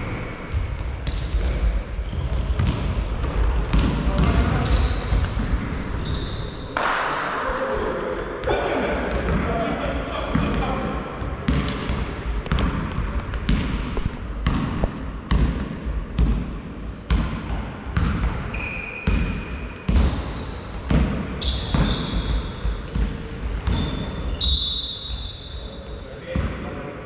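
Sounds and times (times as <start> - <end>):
sneaker squeaks: 0.0 - 6.8, 7.6 - 9.6, 13.5 - 15.7, 16.8 - 26.0
basketball bouncing in a hall: 0.0 - 26.9.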